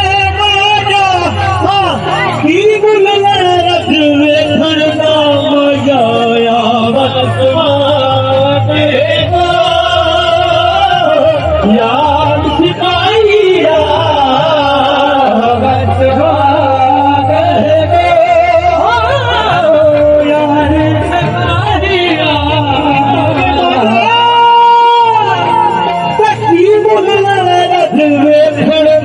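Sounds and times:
instrumental accompaniment: 0:00.0 - 0:29.0.

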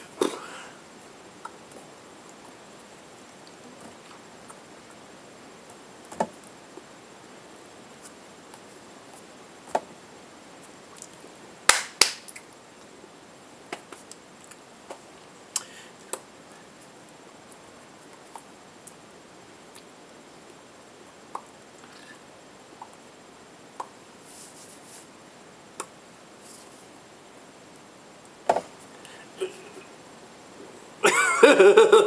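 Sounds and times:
faint steady hiss: 0:00.0 - 0:32.0
hands tapping and clapping: 0:11.7 - 0:12.3.

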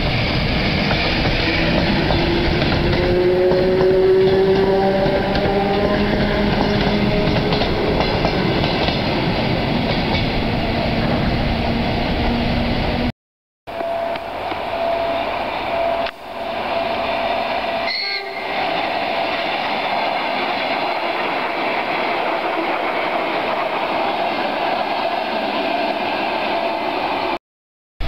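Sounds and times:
train wheel-and-rail noise: 0:00.0 - 0:13.1, 0:13.7 - 0:27.4
train whine: 0:00.0 - 0:13.1, 0:13.7 - 0:27.4
brief higher tone: 0:13.7 - 0:18.5.

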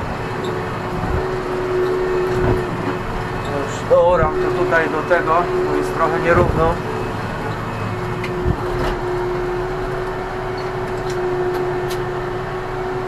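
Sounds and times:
steady tone: 0:00.0 - 0:13.0
tractor diesel engine running: 0:00.0 - 0:13.0.

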